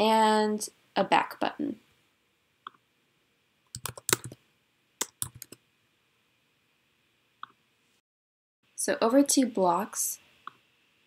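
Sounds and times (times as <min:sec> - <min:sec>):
computer keyboard typing: 0:03.7 - 0:04.4, 0:05.0 - 0:05.6.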